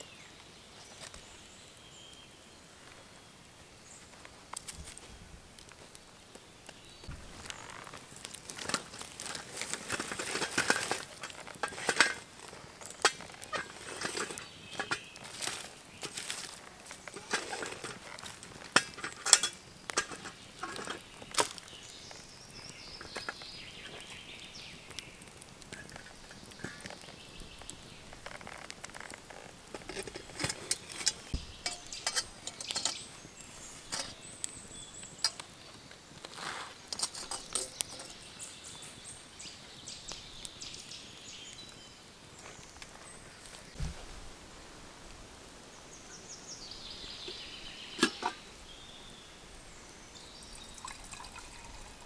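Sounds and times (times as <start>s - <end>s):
stick scraping through embers: 7.3s - 39.1s, 47.2s - 48.5s
utensils touching pot: 8.6s - 16.4s, 17.1s - 21.0s, 29.7s - 33.1s, 33.9s - 34.2s, 48.0s - 48.4s.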